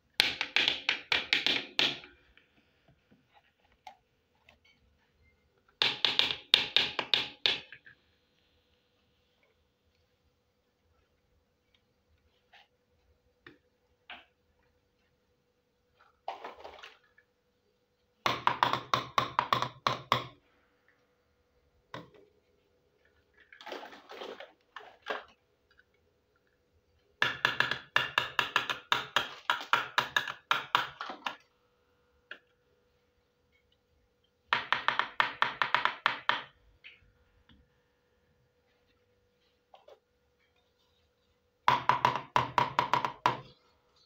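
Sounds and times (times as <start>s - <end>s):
faint steady tone: 4.3s - 5.8s.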